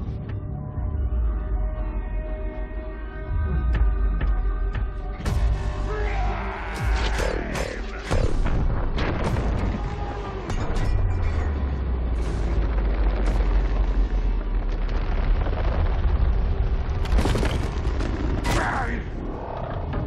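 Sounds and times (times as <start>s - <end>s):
film music score: 0.0s - 20.0s
heavy deep rumble: 2.7s - 20.0s
explosions and impacts: 7.5s - 20.0s.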